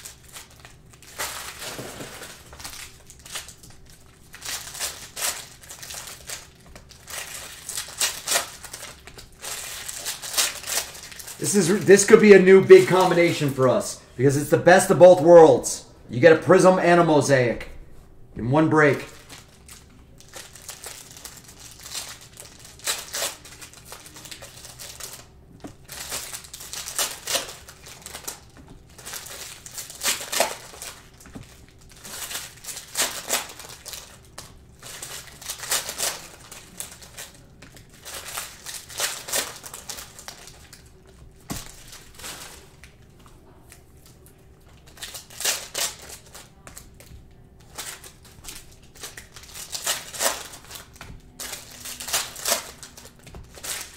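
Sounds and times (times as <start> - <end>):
cards being handled: 0.0 - 13.8
foil wrappers crinkling and tearing: 0.0 - 14.8, 18.7 - 53.9.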